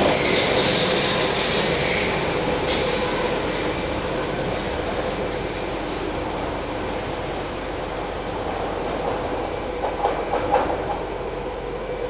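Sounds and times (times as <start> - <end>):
train wheel clicks and knocks: 9.8 - 11.0.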